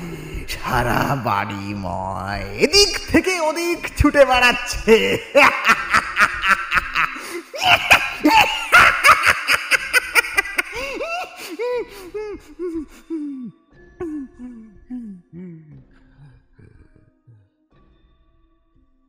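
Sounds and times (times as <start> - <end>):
demonic laughter: 4.9 - 12.9.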